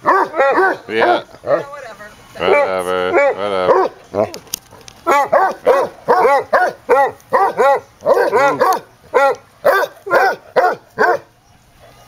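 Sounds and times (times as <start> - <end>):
dog barking: 0.0 - 1.6, 2.5 - 4.0, 5.1 - 11.3.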